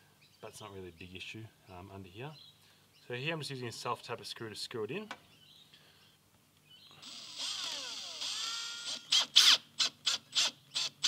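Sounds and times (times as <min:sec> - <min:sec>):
cordless drill motor whining: 0:07.0 - 0:11.0.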